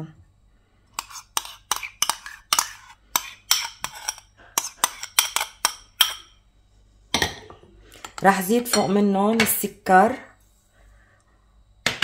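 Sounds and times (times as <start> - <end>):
spoon clinking on ceramic bowl: 1.0 - 6.4.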